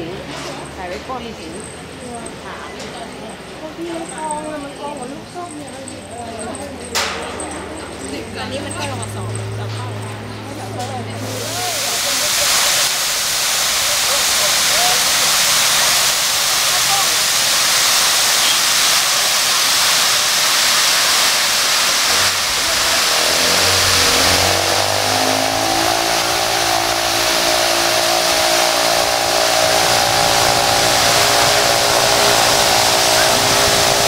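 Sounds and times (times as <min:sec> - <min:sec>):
fountain water spraying: 0:06.4 - 0:34.0
motor hum: 0:21.5 - 0:34.0.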